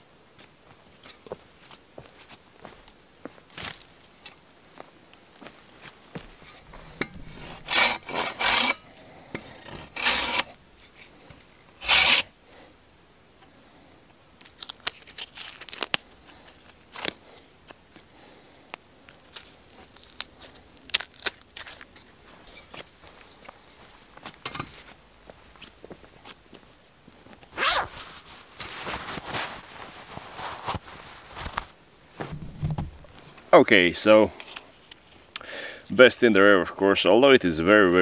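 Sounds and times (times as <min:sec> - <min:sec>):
saw rasping through branch: 0:07.0 - 0:08.8, 0:09.4 - 0:10.6, 0:11.8 - 0:12.3
bark tearing as it is peeled: 0:14.4 - 0:17.3, 0:19.2 - 0:22.0.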